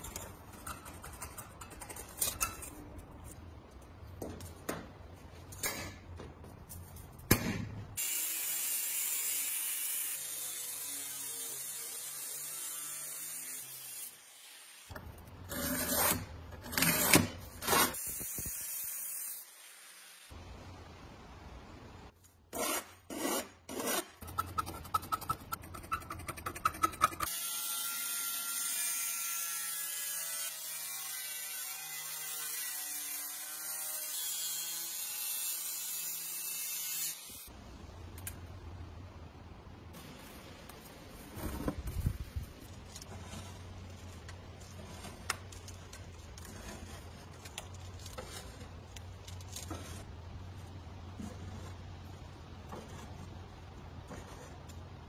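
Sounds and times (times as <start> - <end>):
file scraping steel edge: 0.0 - 3.3, 15.4 - 18.2, 22.5 - 27.3, 46.3 - 48.7
angle grinder cutting steel: 8.0 - 14.9.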